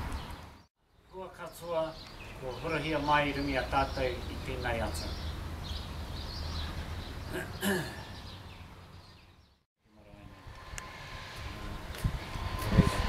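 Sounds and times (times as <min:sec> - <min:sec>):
steady low rumble: 0:10.0 - 0:13.0.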